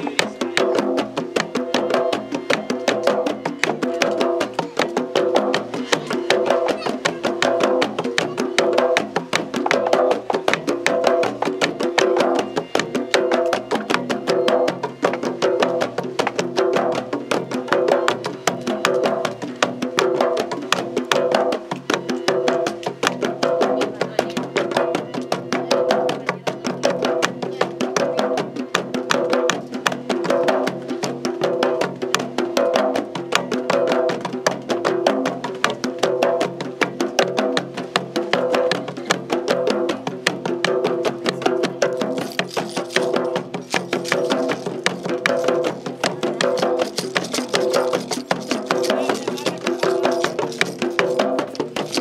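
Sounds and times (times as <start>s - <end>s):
rhythmic percussion music: 0.0s - 52.0s.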